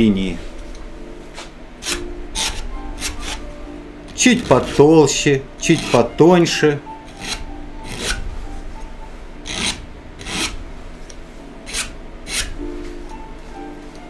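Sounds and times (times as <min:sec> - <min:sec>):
faint background music: 0:00.0 - 0:14.0
palette knife scraping canvas: 0:07.2 - 0:08.2, 0:09.5 - 0:10.6, 0:11.7 - 0:12.6.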